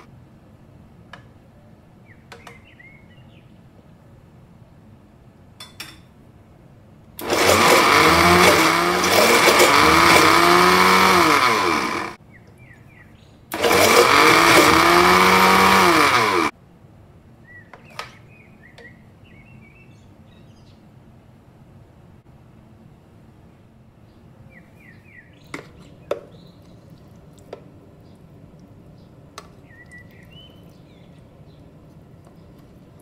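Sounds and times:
blender running: 7.2s - 12.2s, 13.5s - 16.5s.

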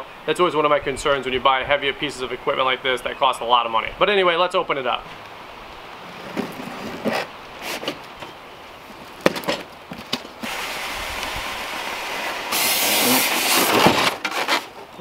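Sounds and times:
cardboard rubbing rustle: 6.0s - 10.6s, 12.1s - 14.9s.

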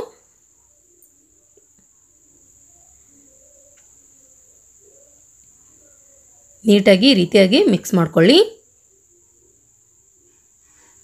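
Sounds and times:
cricket trilling: 0.0s - 11.0s.

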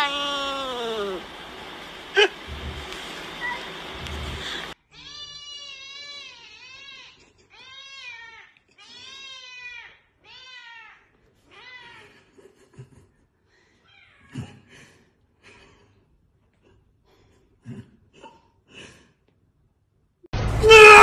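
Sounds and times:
cat meowing: 0.0s - 1.2s.

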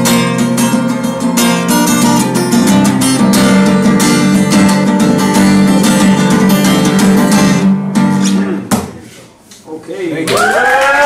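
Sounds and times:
acoustic guitar strumming: 0.0s - 9.1s.

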